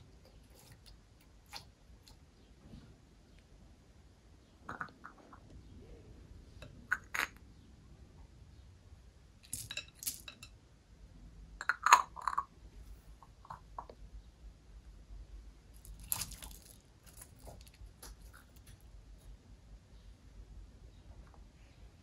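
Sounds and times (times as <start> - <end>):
small objects clinking in container: 9.5 - 10.5, 15.8 - 18.7.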